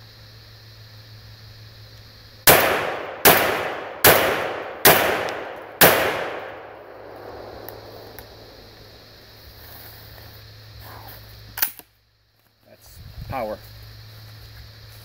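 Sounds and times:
shotgun shots: 0:02.5 - 0:09.0.

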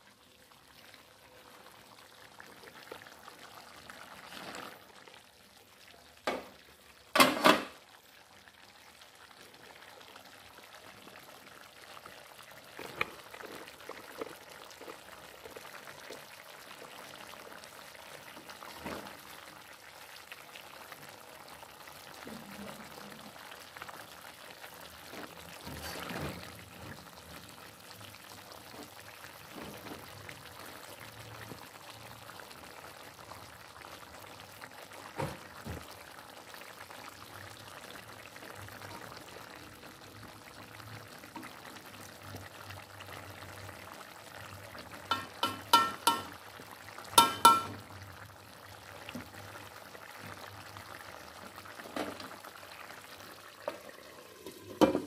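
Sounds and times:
curry simmering in wok: 0:00.0 - 0:55.0
metal ladle stirring: 0:45.1 - 0:46.3, 0:47.2 - 0:47.8.

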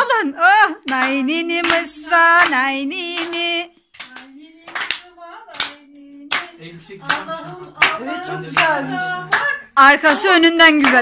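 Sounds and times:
person singing: 0:00.4 - 0:09.7
hands clapping a slow beat: 0:00.8 - 0:10.2.

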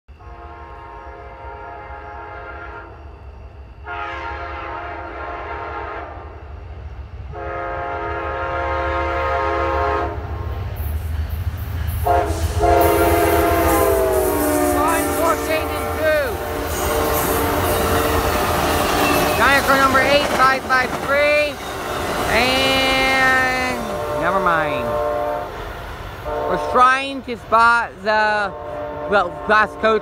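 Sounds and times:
train rumble and rail noise: 0:00.1 - 0:30.0
train air horn blasts: 0:00.2 - 0:03.0, 0:03.8 - 0:06.4, 0:07.3 - 0:10.3, 0:12.0 - 0:20.0, 0:22.8 - 0:27.0, 0:28.4 - 0:30.0.

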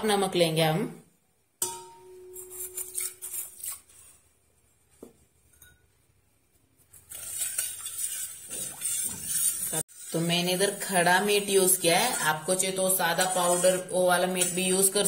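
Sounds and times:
spoon clinking ceramic bowl: 0:01.6 - 0:02.9, 0:05.5 - 0:05.9
spoon scraping steel pot: 0:01.7 - 0:03.9, 0:06.9 - 0:15.0.

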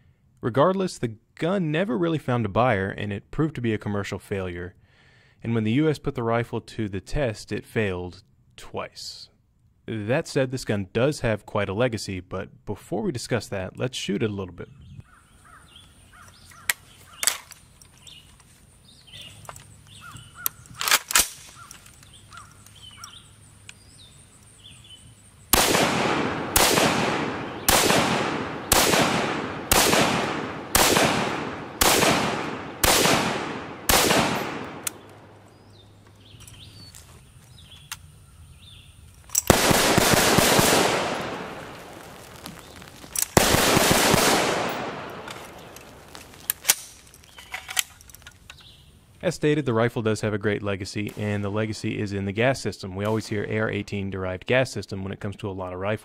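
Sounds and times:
crow cawing faintly: 0:15.1 - 0:17.3
rifle rapid fire: 0:25.5 - 0:35.1, 0:39.5 - 0:42.4, 0:43.4 - 0:46.2
rifle shots with echo: 0:25.5 - 0:35.5, 0:39.5 - 0:46.9
sharp clicks: 0:25.5 - 0:37.1, 0:39.1 - 0:48.7.

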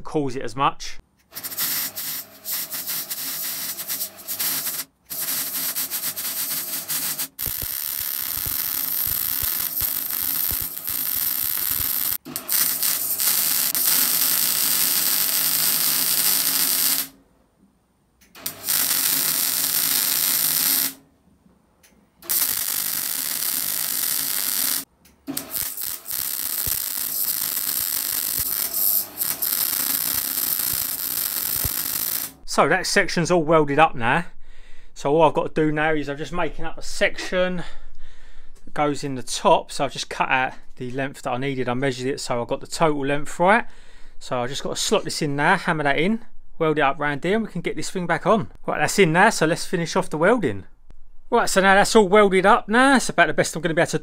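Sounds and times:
welder arc running: 0:01.3 - 0:17.2, 0:18.4 - 0:21.0, 0:22.2 - 0:32.4.

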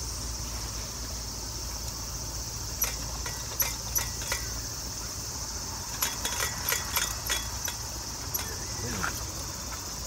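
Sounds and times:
insects trilling: 0:00.0 - 0:10.0
sharp metallic clicks of lantern: 0:02.8 - 0:04.6, 0:05.9 - 0:08.7.

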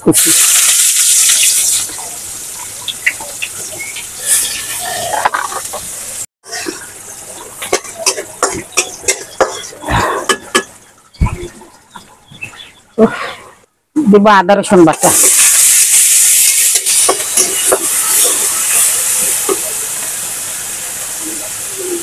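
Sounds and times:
onions sizzling in oil: 0:00.0 - 0:09.8, 0:15.0 - 0:22.0
metal spatula scraping a wok: 0:04.2 - 0:05.7, 0:15.3 - 0:19.0.

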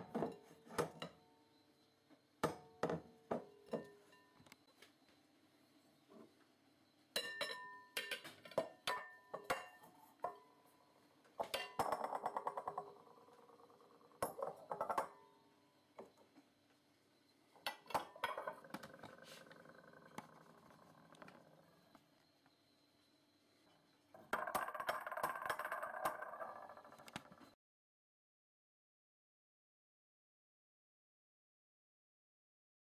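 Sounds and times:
glass bowls clinking: 0:02.8 - 0:04.4, 0:07.1 - 0:10.5, 0:11.4 - 0:15.3, 0:17.6 - 0:21.7
glass-on-glass rattling: 0:24.2 - 0:27.4.

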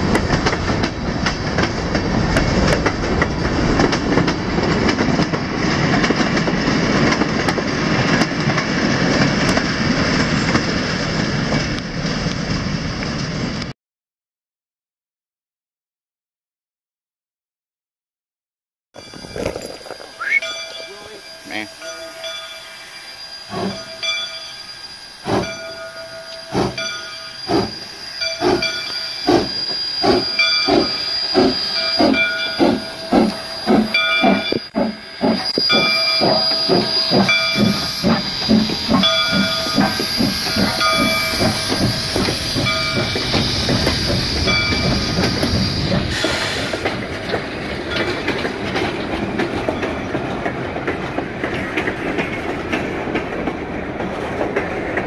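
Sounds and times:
steam hissing: 0:19.0 - 0:47.2
freight cars rolling: 0:19.0 - 0:55.0.

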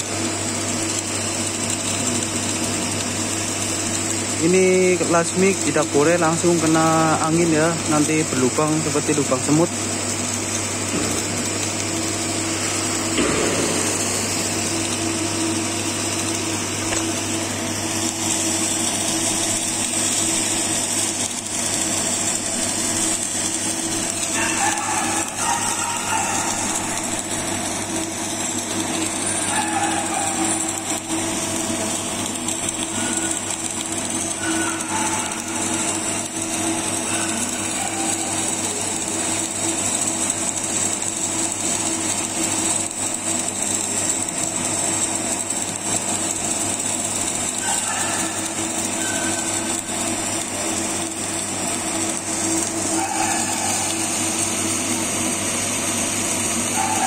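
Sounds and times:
steady hum: 0:00.0 - 0:40.0
welding arc crackling: 0:00.0 - 0:57.0.

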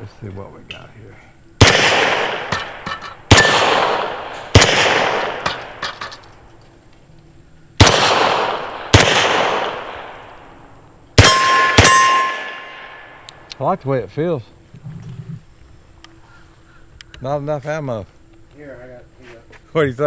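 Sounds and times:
pistol shots echoing: 0:01.6 - 0:06.1, 0:07.8 - 0:10.4, 0:11.2 - 0:13.5
steel target ringing: 0:01.6 - 0:06.4, 0:11.2 - 0:13.2.

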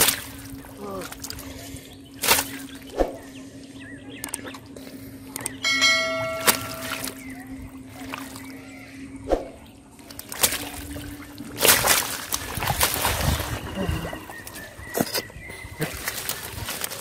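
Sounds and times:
hands splashing in mud and water: 0:00.0 - 0:01.4, 0:02.2 - 0:03.1, 0:06.3 - 0:07.3, 0:10.1 - 0:17.0
steady low hum: 0:00.0 - 0:17.0
bell-like ringing: 0:05.6 - 0:07.6.

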